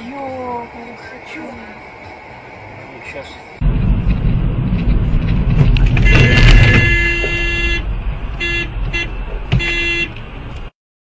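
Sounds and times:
engine and road rumble: 0:00.0 - 0:10.8
rush of noise: 0:01.8 - 0:08.4
car horn honking: 0:05.8 - 0:10.2.

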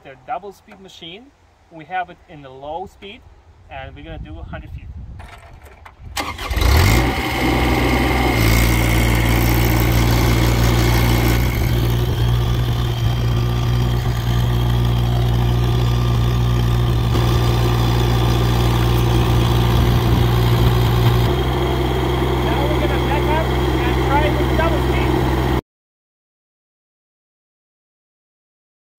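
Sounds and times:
diesel engine running: 0:06.2 - 0:25.6.

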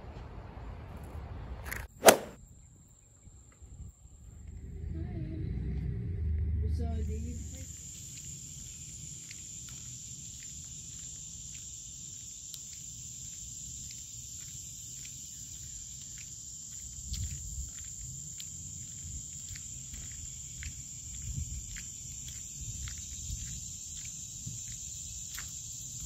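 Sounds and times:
high-pitched insect drone: 0:07.1 - 0:26.0.

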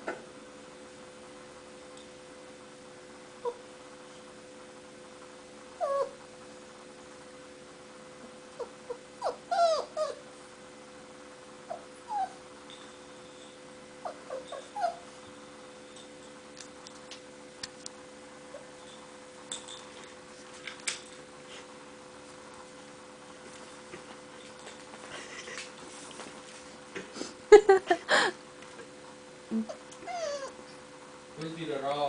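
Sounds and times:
steady hum: 0:00.0 - 0:32.0
puppy whimpering: 0:03.4 - 0:03.6, 0:05.8 - 0:06.2, 0:08.6 - 0:10.2, 0:11.6 - 0:12.4, 0:14.0 - 0:15.2, 0:29.5 - 0:30.8.

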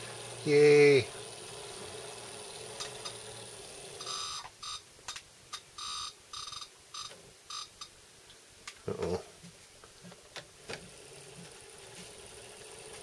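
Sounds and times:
model train motor whining: 0:00.0 - 0:04.5.

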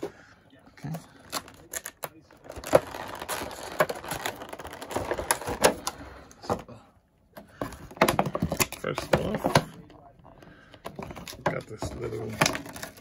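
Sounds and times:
crinkly rustling: 0:00.8 - 0:06.2
plastic packaging crackling: 0:01.1 - 0:06.2, 0:10.9 - 0:13.0.

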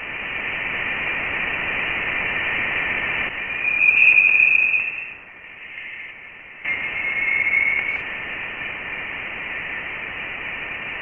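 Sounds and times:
whistling tone: 0:03.5 - 0:05.2, 0:06.7 - 0:08.0.

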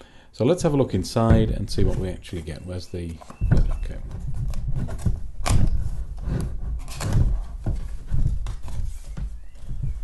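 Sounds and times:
cardboard box being opened: 0:03.5 - 0:10.0.

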